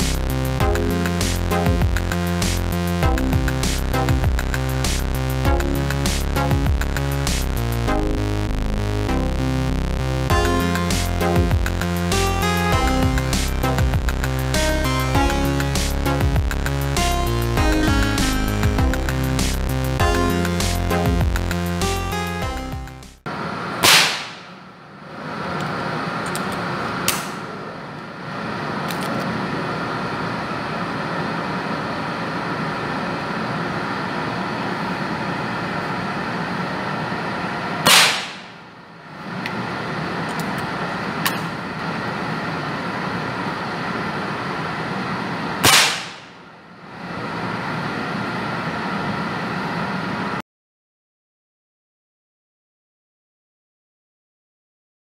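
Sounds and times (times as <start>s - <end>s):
steady background noise: 23.3s - 50.4s
air rifle shots: 23.8s - 24.7s, 27.1s - 27.5s, 37.8s - 38.8s, 45.6s - 46.5s.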